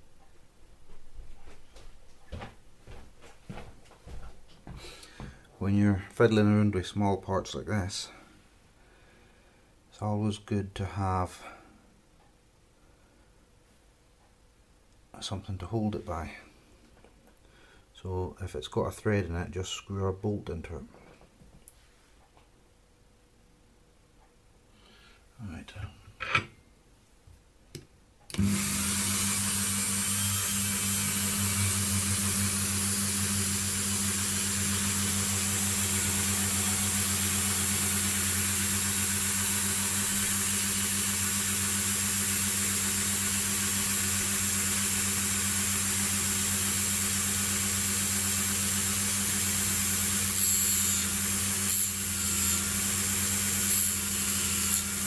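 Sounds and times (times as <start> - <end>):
rotary tool humming: 28.4 - 55.0.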